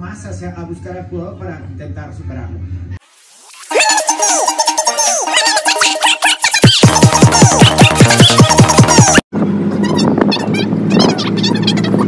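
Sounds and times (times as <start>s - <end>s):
electronic music with fast beat: 3.6s - 9.2s
swooping synth notes: 3.6s - 9.2s.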